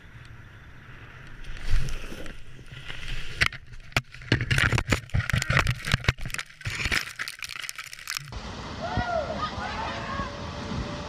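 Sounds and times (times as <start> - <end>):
branches snapping: 1.5 - 8.4
leaves thrashing: 4.1 - 8.4.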